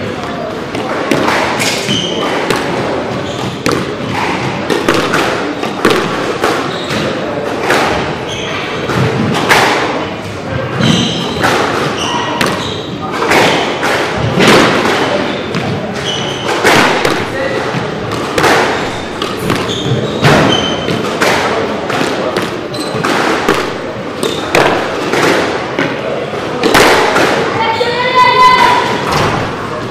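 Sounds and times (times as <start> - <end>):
squash balls hitting walls: 0.0 - 27.6, 28.4 - 29.9
shoes squeaking on wooden floor: 0.7 - 21.3, 22.6 - 25.1.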